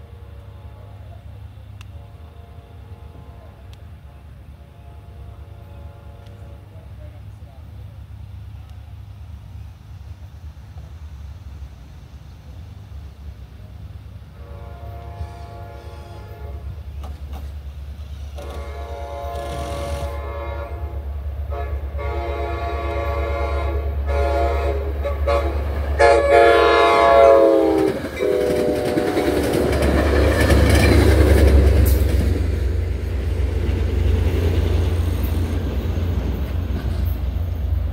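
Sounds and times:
train horn blasts: 0.0 - 6.9, 14.3 - 17.0, 18.3 - 31.0
train rumbling by: 0.0 - 37.9.

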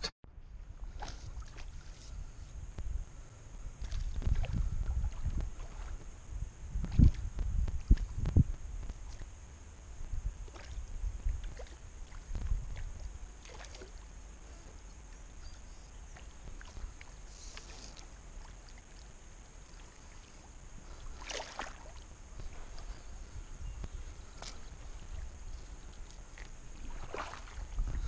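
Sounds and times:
water lapping around kayak hull: 0.8 - 28.0
short splash on water: 21.2 - 22.0, 26.8 - 27.7.

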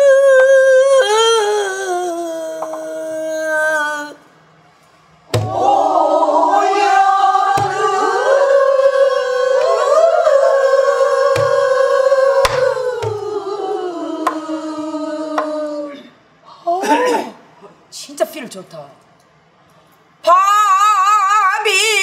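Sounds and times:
barrel drum strokes: 5.3 - 5.8, 11.3 - 11.7.

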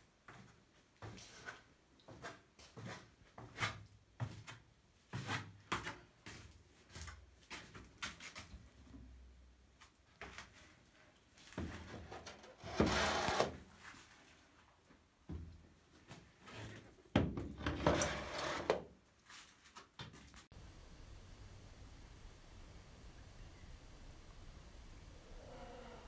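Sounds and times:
glass jar scraping on wooden shelf: 12.0 - 13.6, 17.6 - 18.8.

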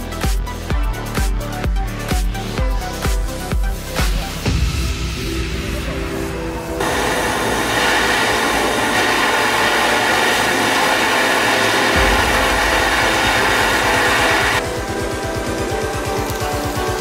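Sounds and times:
gas torch jet hissing: 6.8 - 14.7.

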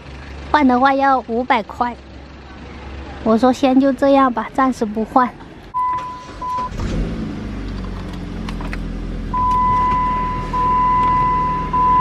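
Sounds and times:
car engine starting and idling: 0.0 - 12.0
dashboard warning beeps: 5.7 - 6.8, 9.3 - 12.0.

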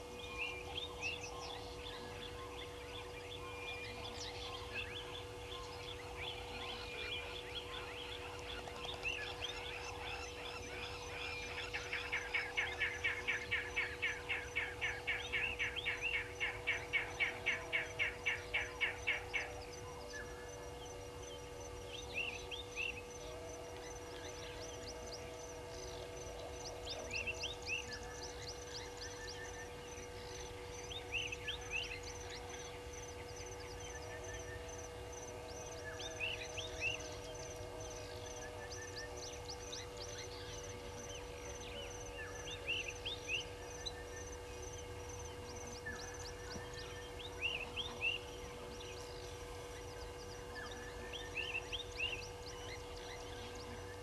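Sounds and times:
faint steady hum: 0.0 - 54.0.

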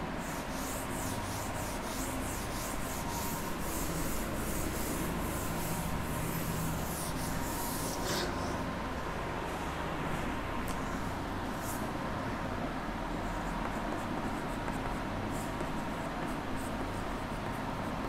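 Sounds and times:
steady background hum: 0.0 - 18.0
writing strokes scratching on board: 0.2 - 8.5, 13.2 - 18.0.

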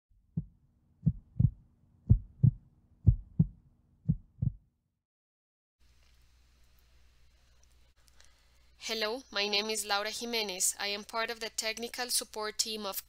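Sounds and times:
heartbeat thumps: 0.2 - 4.6.

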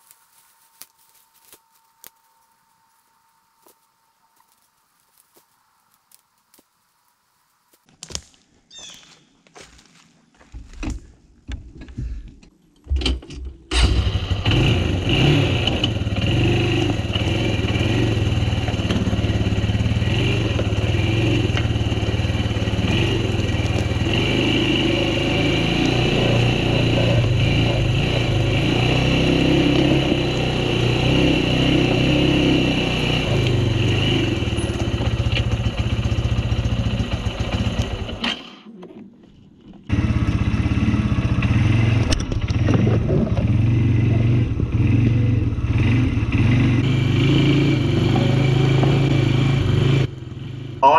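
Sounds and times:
atv engine running: 13.7 - 38.6, 39.8 - 50.9.

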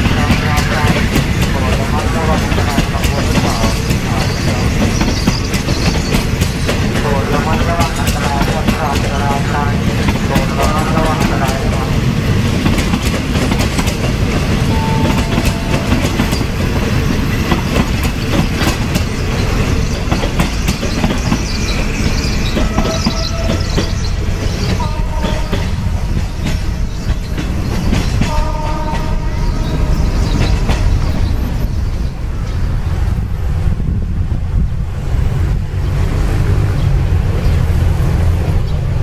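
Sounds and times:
wheels clicking over rail joints: 0.0 - 32.0
train rumbling: 0.0 - 39.0
wheel squeals: 19.1 - 25.8.

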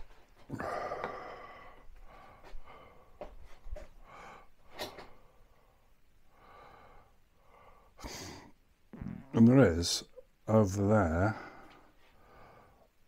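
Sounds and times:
man breathing and sniffing: 0.0 - 8.6.

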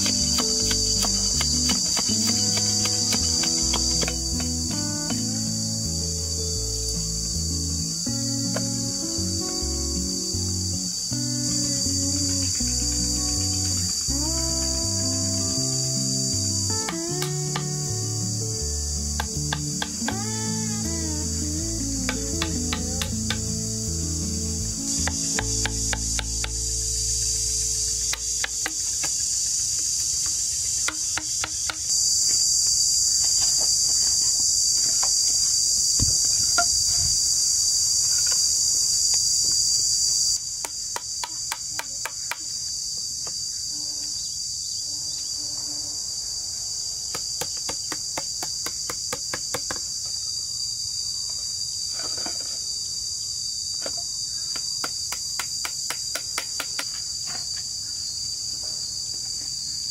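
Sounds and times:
bamboo being chiselled: 0.0 - 5.3, 19.1 - 20.4, 22.0 - 23.6, 24.8 - 37.0, 40.4 - 43.4, 47.1 - 50.1, 53.8 - 57.7
high-pitched insect chorus: 0.0 - 59.9.

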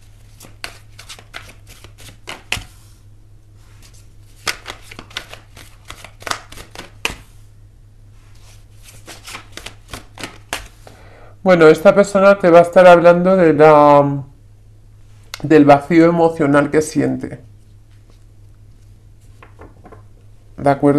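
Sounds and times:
cards being shuffled by hand: 0.0 - 3.0, 3.7 - 7.4, 8.3 - 10.9, 17.7 - 20.1.

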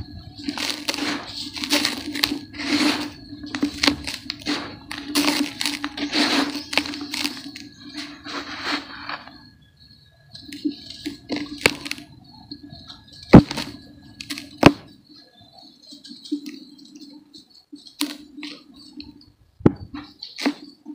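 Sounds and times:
dry dirt clods crunching: 0.0 - 9.5
powdery dirt sifting: 0.0 - 9.5, 10.4 - 14.9
sharp cracks: 13.2 - 15.0.

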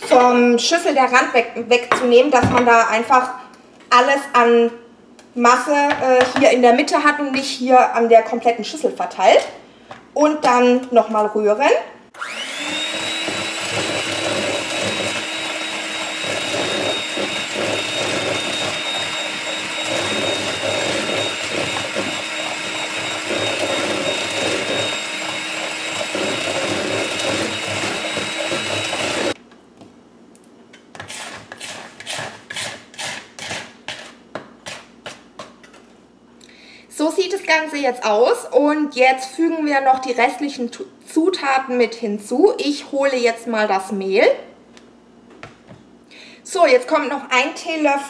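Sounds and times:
electric hand mixer whining: 12.2 - 29.4
spatula scraping bowl: 12.7 - 29.4, 30.8 - 35.9.

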